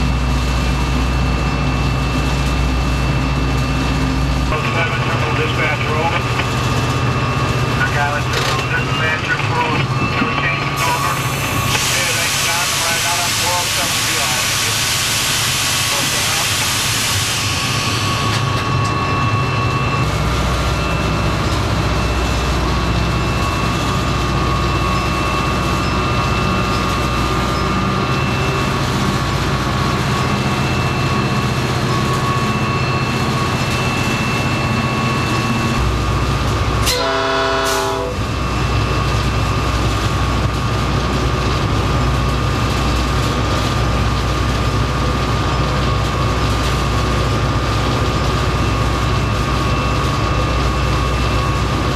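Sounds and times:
locomotive engine rumble: 0.0 - 51.9.

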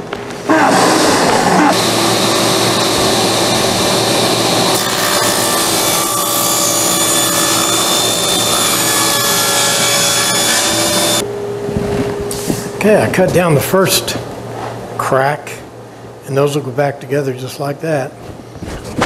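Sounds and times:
table saw cutting wood: 0.6 - 11.2.

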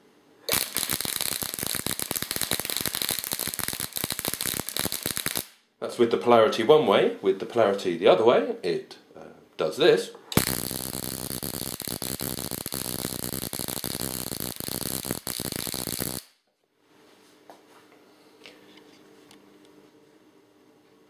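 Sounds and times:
electric spark arc crackling: 0.5 - 5.6, 10.4 - 16.4.

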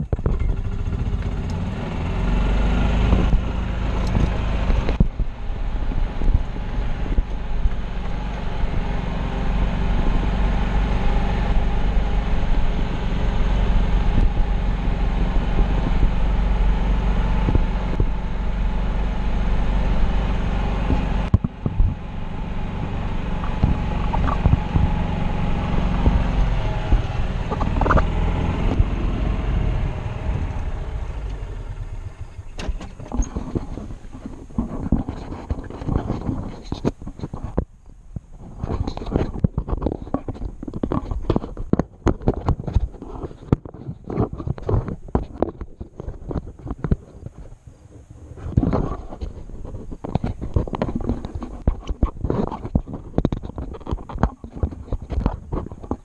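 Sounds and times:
golf cart driving: 0.0 - 56.0
knocks and rattles: 23.4 - 28.9, 32.3 - 47.5, 48.4 - 56.0.

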